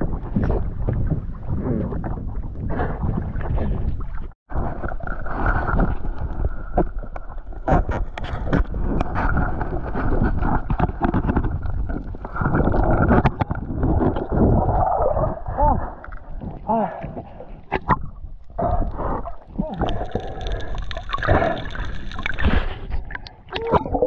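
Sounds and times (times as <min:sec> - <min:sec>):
muffled underwater rush and bubbling: 0:00.0 - 0:24.0
water splashing and dripping: 0:17.8 - 0:24.0.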